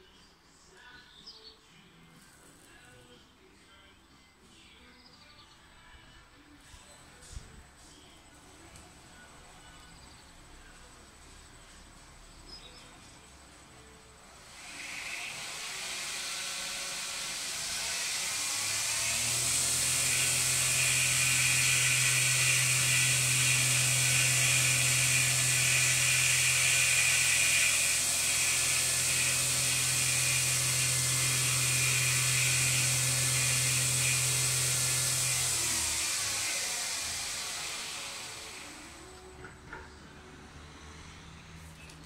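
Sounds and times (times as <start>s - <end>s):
belt grinder running: 14.4s - 39.3s.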